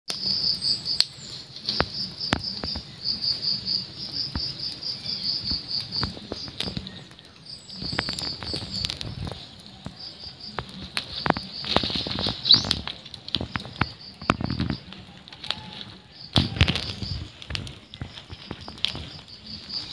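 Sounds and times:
insect chirping: 0.1s - 19.9s
kittens scuffling in dry leaves: 4.9s - 19.9s.

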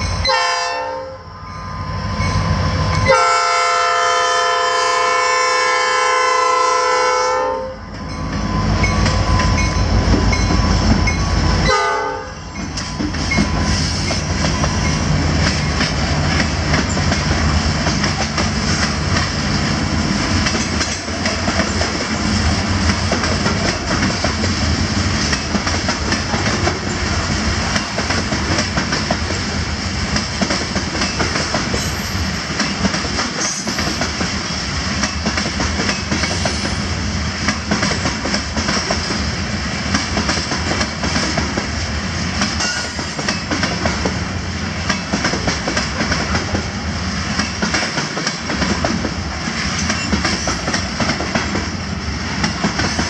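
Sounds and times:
freight train rumbling past: 0.0s - 53.0s
wheels clicking over rail joints: 12.6s - 36.8s, 42.4s - 44.2s, 47.3s - 51.8s.

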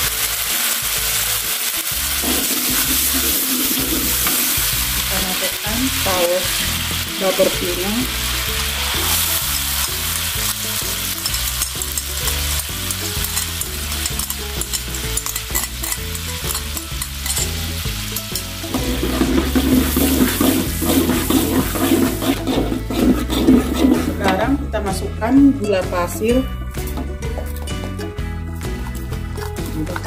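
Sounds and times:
sauce sizzling in a wok: 0.0s - 24.8s
background music: 0.0s - 30.0s
metal spatula scraping a pan: 2.2s - 5.0s, 18.7s - 24.7s.

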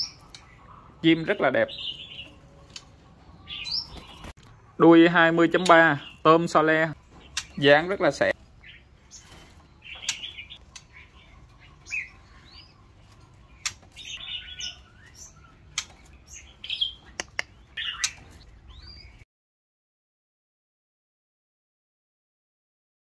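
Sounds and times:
bird chirps and whistled calls: 0.0s - 2.4s, 3.4s - 4.3s, 7.1s - 12.8s, 13.5s - 19.2s.

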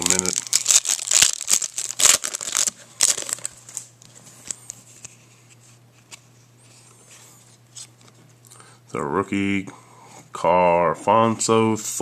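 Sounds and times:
plastic crinkling and crackling: 0.0s - 4.7s.

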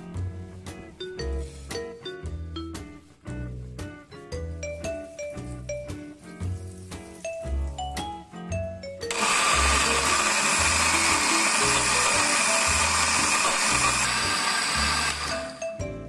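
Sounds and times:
blender motor running: 9.1s - 15.6s.

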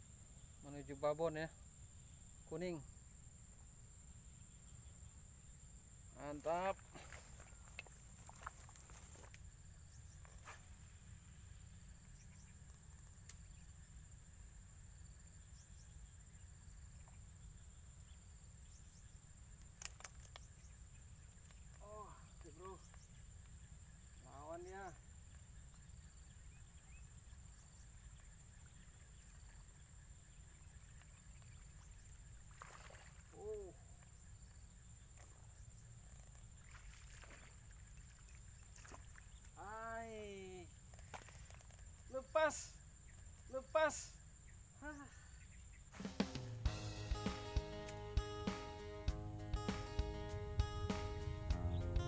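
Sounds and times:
faint click: 13.0s - 13.5s.

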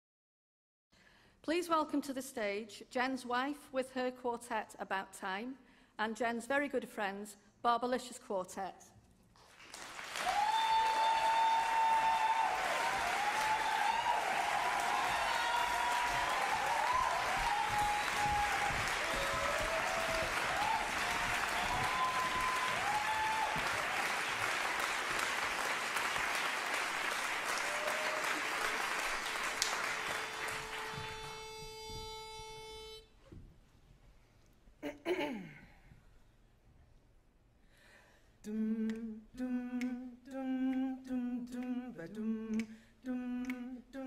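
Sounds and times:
audience applauding and cheering: 9.5s - 31.9s
pitch pipe note: 30.0s - 33.2s.

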